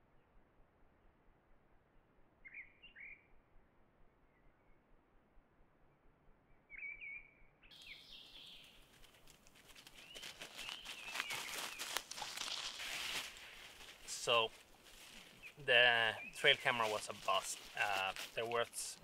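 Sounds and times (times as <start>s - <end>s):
birds chirping: 6.7s - 8.9s, 9.9s - 19.0s
dog running through dry leaves: 8.7s - 15.4s, 16.4s - 18.7s.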